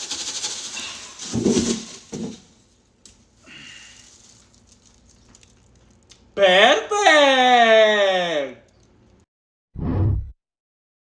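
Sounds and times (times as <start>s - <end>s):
sprinkles pattering into bowl: 0.0s - 1.7s, 3.8s - 6.4s.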